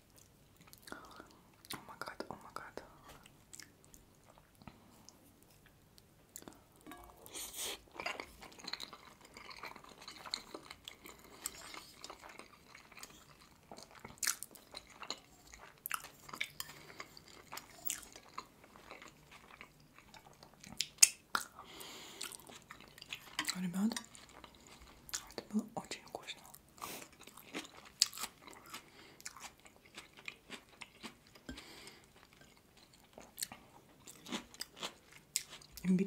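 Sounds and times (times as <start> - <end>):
chewing and wet mouth sounds: 0.0 - 36.0.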